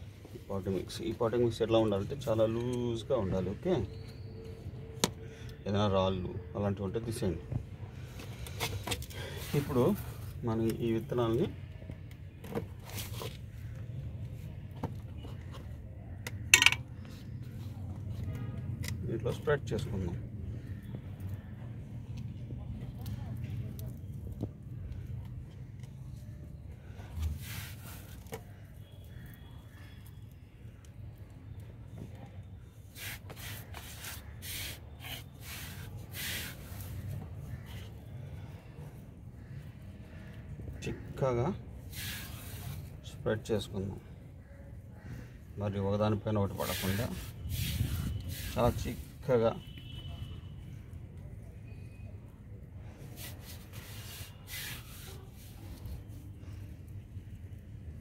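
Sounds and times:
seeds scraping: 0:32.9 - 0:37.9, 0:41.9 - 0:43.0, 0:46.4 - 0:49.2, 0:53.2 - 0:56.1
seeds rustling in hands: 0:41.9 - 0:42.9.

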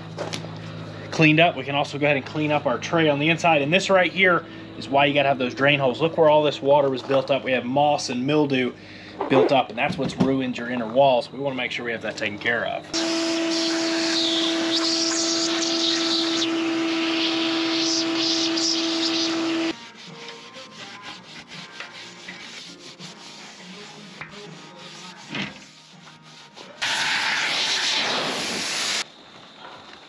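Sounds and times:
shop vacuum whining: 0:12.0 - 0:19.8, 0:26.6 - 0:29.0
compressed air blow gun hissing: 0:13.0 - 0:19.9, 0:26.8 - 0:29.0.

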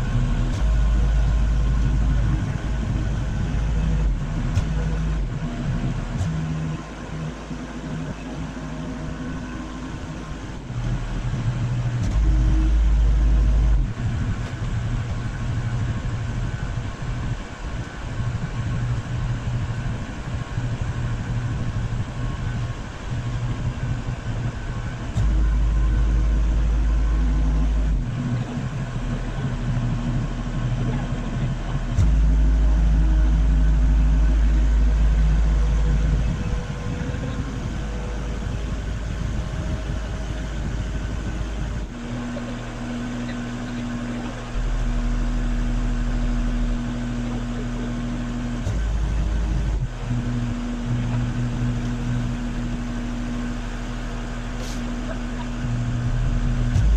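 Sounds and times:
machinery engine running: 0:00.0 - 0:56.9
steady humming tone: 0:00.0 - 0:56.9.

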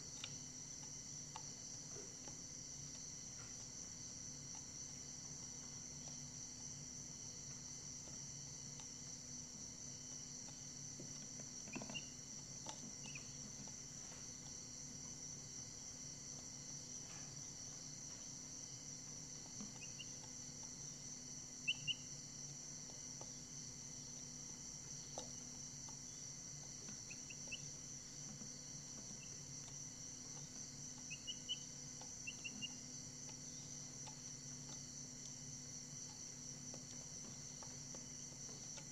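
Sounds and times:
cricket trill: 0:00.0 - 0:38.9
chicks peeping: 0:11.6 - 0:12.2, 0:13.0 - 0:13.7, 0:19.7 - 0:20.3, 0:21.6 - 0:22.1, 0:27.0 - 0:27.6, 0:31.0 - 0:32.8.

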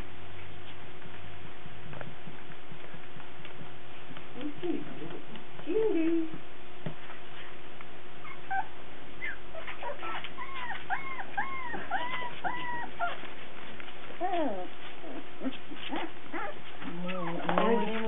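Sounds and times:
puppy whining: 0:08.2 - 0:18.0.

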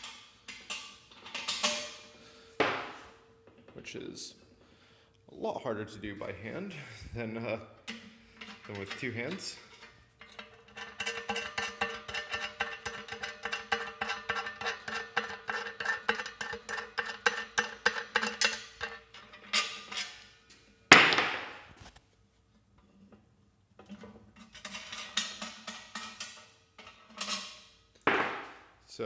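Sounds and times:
metal clink: 0:00.5 - 0:02.2.

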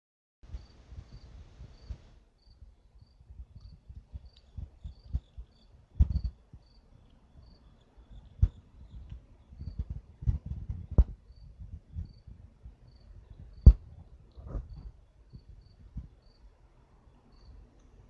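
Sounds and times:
cricket chirping: 0:00.5 - 0:09.8, 0:11.3 - 0:12.3, 0:12.9 - 0:13.8, 0:14.5 - 0:16.6, 0:17.3 - 0:17.6.

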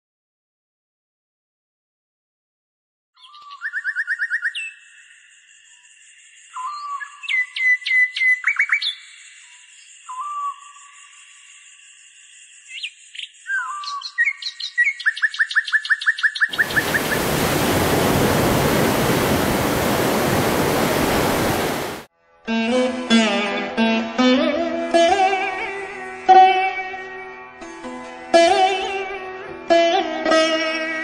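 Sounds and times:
birds chirping and whistling: 0:03.2 - 0:04.8, 0:06.5 - 0:09.2, 0:12.7 - 0:18.0
repeated bird calls: 0:12.8 - 0:21.9
surf washing over sand: 0:16.5 - 0:22.1.

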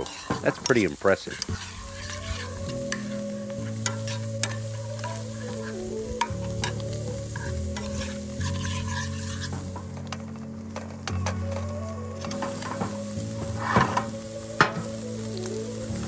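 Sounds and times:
metal spoon stirring: 0:00.0 - 0:06.8, 0:07.4 - 0:09.9
butter sizzling in a skillet: 0:00.0 - 0:16.0
soft background music: 0:00.0 - 0:16.0.

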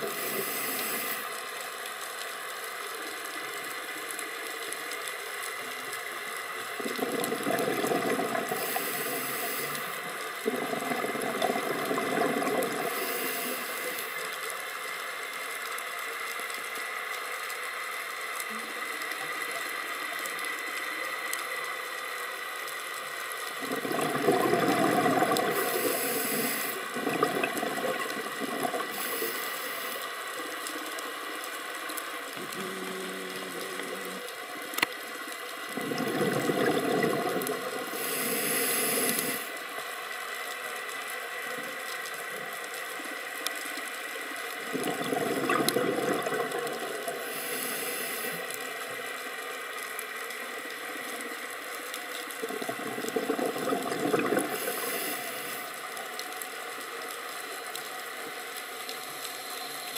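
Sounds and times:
regulator inhalation hiss: 0:00.0 - 0:01.4, 0:08.5 - 0:10.1, 0:12.8 - 0:14.3, 0:25.5 - 0:27.0, 0:28.8 - 0:30.2, 0:37.8 - 0:39.6, 0:47.1 - 0:48.8, 0:54.5 - 0:55.8
steady underwater hiss: 0:00.0 - 0:59.9
bubbling regulator exhalations: 0:06.8 - 0:13.2, 0:23.6 - 0:29.4, 0:35.7 - 0:39.4, 0:44.6 - 0:48.2, 0:52.4 - 0:55.1.

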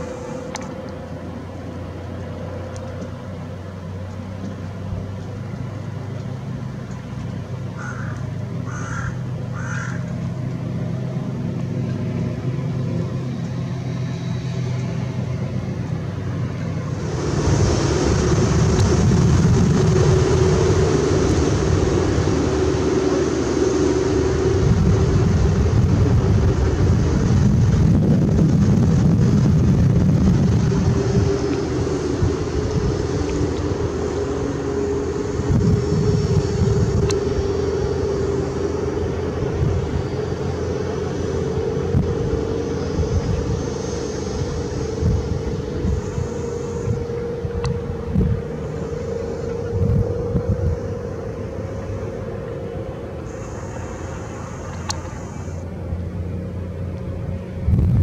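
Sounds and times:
motorboat engine humming: 0:00.0 - 0:58.0
water noise: 0:00.0 - 0:58.0
short bird calls: 0:07.8 - 0:10.1.

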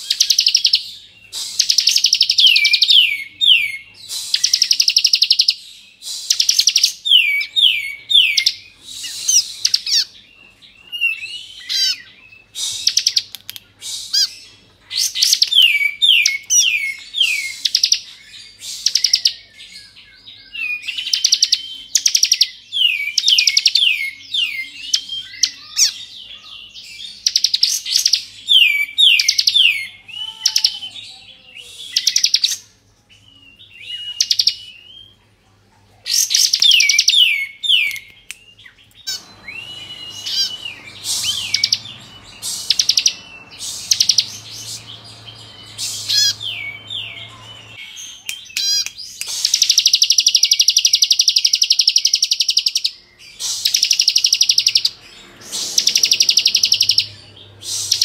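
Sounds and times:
bird singing rattling trills: 0:36.3 - 0:58.0.

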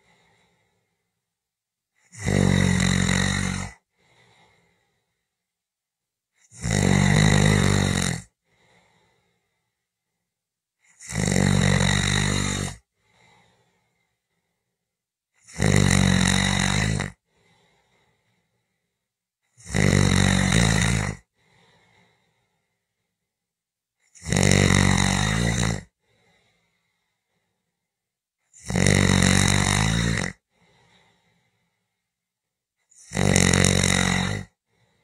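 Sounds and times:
person snoring: 0:02.0 - 0:05.2, 0:06.4 - 0:09.6, 0:10.8 - 0:14.2, 0:15.4 - 0:18.7, 0:19.5 - 0:22.8, 0:24.1 - 0:27.1, 0:28.5 - 0:31.8, 0:32.8 - 0:35.0.

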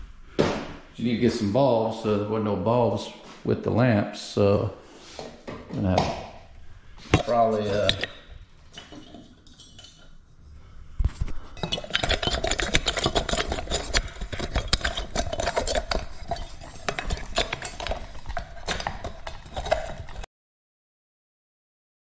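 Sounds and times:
hands clicking and rubbing objects: 0:11.0 - 0:20.3.

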